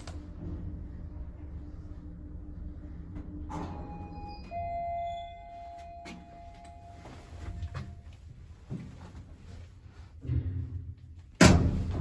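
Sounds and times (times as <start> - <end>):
lift drive hum: 0.0 - 8.6
two-note arrival chime: 3.8 - 8.0.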